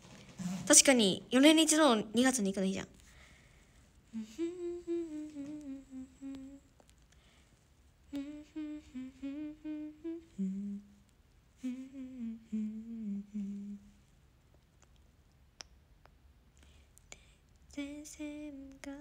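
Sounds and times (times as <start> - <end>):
woman humming a melody: 4.1 - 6.7, 8.1 - 11.0, 11.6 - 13.9, 17.8 - 19.0.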